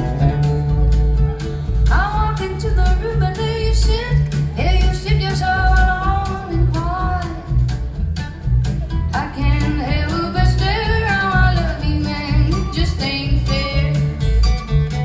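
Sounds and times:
heavy low end bass: 0.0s - 11.6s
acoustic guitar: 0.0s - 15.0s
electric guitar: 0.0s - 15.0s
woman singing: 1.8s - 7.6s, 9.1s - 14.2s.

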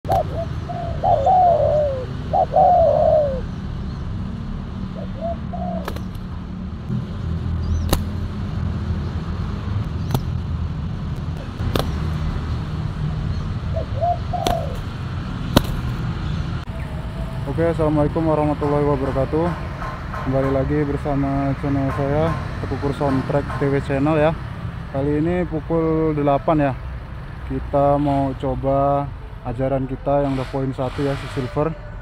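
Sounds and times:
doves cooing: 0.0s - 3.7s, 4.8s - 6.4s, 11.4s - 16.6s.

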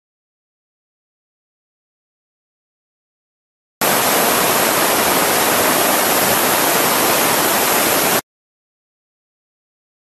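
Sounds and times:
jet engine rushing: 3.8s - 8.2s.

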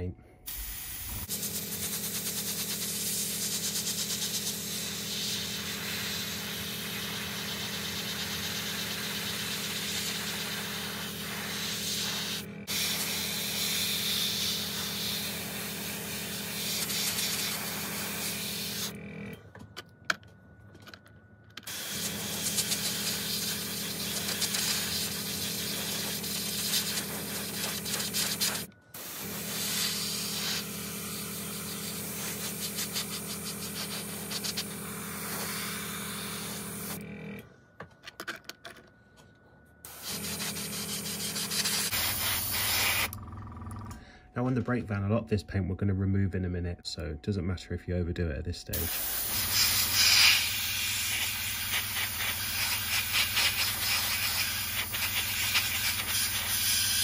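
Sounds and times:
airbrush spraying hiss: 0.5s - 18.9s, 21.7s - 37.0s, 39.9s - 43.1s, 48.8s - 57.0s.

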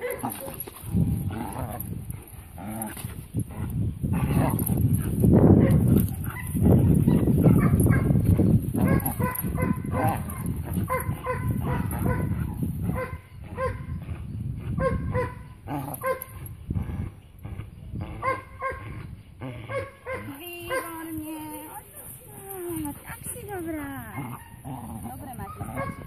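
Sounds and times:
dog growling rumble: 0.0s - 14.8s, 15.6s - 19.8s, 22.1s - 26.0s
young dog whining and yelping: 14.8s - 16.5s, 25.4s - 26.0s.

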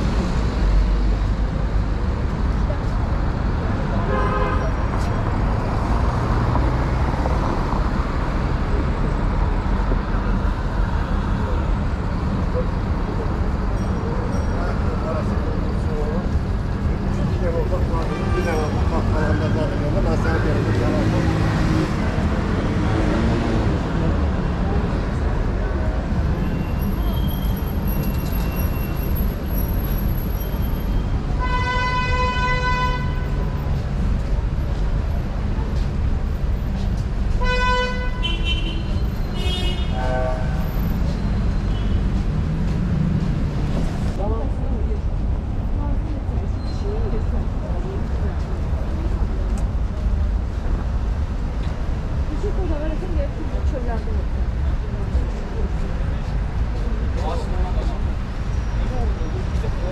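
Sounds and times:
passing cars rumbling: 0.0s - 59.9s
long vehicle horn honk: 4.0s - 4.8s, 31.4s - 33.4s, 37.4s - 40.6s.

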